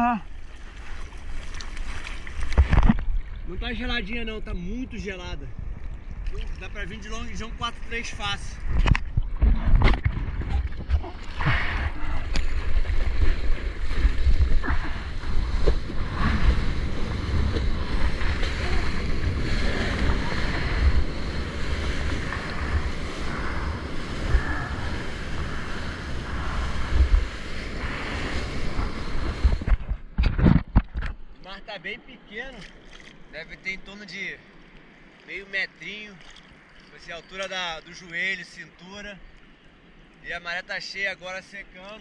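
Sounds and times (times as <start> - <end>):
seawater rushing and splashing: 0.0 - 3.7, 5.9 - 29.8
wind rumble on microphone: 2.3 - 31.2.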